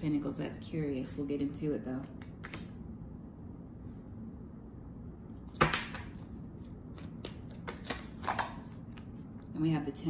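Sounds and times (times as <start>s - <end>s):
card deck snap: 2.1s - 2.7s.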